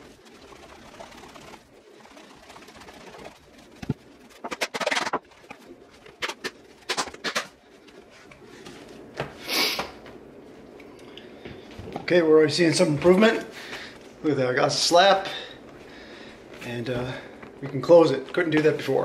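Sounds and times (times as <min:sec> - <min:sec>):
leather glove creaking and rubbing: 0:00.0 - 0:08.1.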